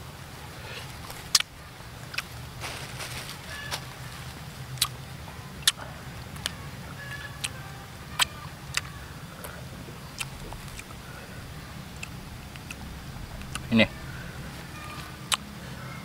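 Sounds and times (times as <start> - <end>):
low steady hum: 0.0 - 16.0
fruit cracking clicks and snaps: 1.0 - 1.5, 2.1 - 2.4, 4.8 - 5.0, 5.6 - 5.8, 7.4 - 7.6, 8.2 - 10.9, 13.4 - 13.7, 15.0 - 15.5.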